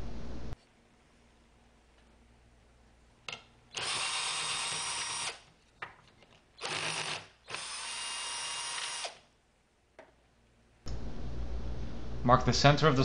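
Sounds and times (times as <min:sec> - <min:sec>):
cordless drill running: 0:03.7 - 0:05.4, 0:06.6 - 0:09.2.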